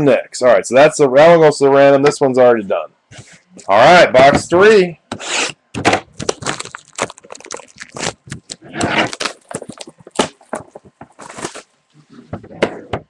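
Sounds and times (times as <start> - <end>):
cardboard and packaging crinkling: 6.1 - 11.7.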